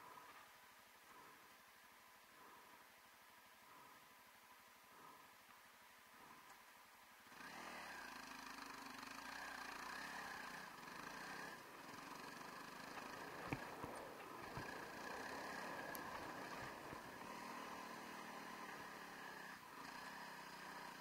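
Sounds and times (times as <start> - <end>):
motorcycle engine running: 7.3 - 21.0.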